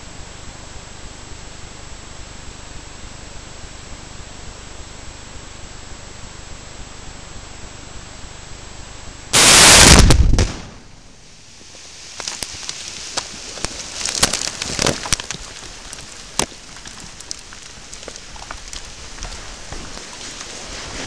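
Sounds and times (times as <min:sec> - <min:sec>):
loud blast boom: 0:09.4 - 0:11.0
rock and dirt falling: 0:11.6 - 0:21.0.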